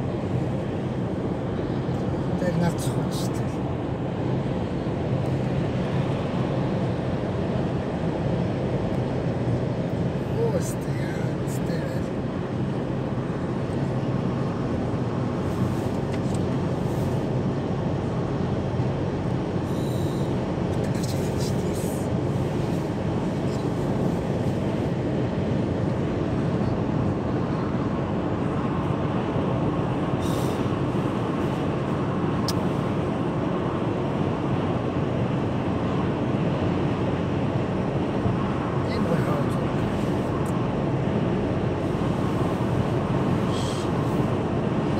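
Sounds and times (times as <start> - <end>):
car cabin road noise: 0.0 - 44.9.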